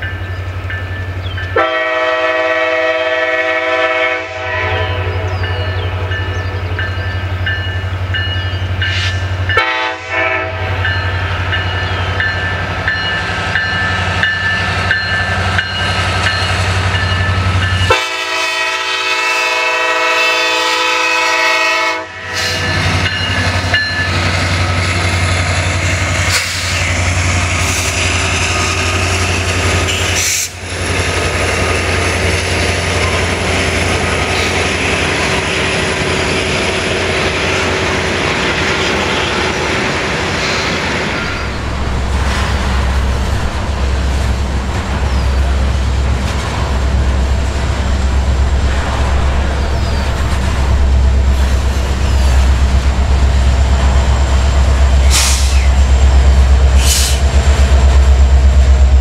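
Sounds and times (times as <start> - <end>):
crossing signal bells ringing: 0.0 - 1.9, 5.2 - 10.0, 10.6 - 18.3, 22.5 - 25.1
locomotive engine rumble: 0.0 - 59.0
locomotive air horn blasts: 1.6 - 6.2, 9.6 - 10.8, 17.8 - 22.7.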